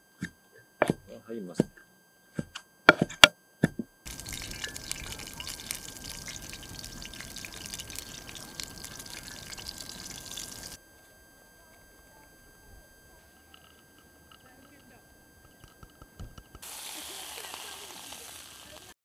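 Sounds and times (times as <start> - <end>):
running water: 4.1 - 10.8, 16.6 - 19.0.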